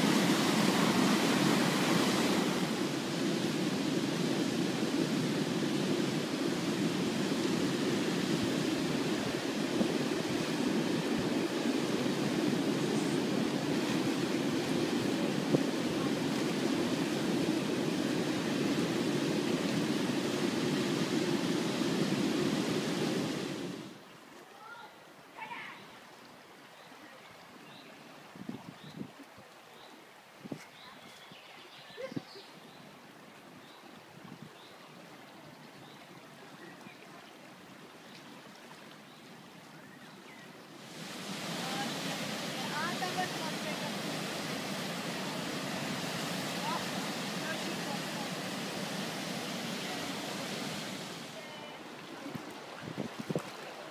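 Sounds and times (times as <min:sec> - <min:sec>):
river roaring over a weir: 0:00.0 - 0:24.0, 0:40.6 - 0:53.9.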